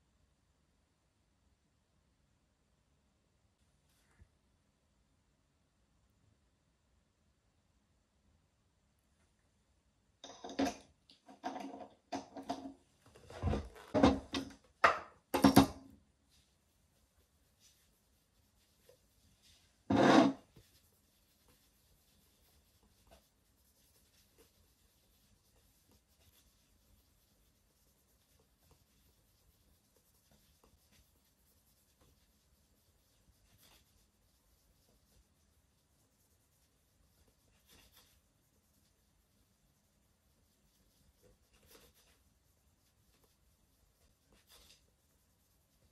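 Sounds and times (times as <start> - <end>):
cloth rubbing on leather shoe: 13.0 - 14.6, 16.3 - 45.9.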